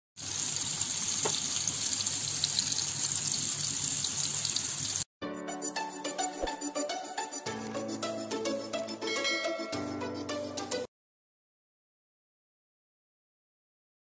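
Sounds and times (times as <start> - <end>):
burger patties sizzling in a pan: 0.2 - 5.1.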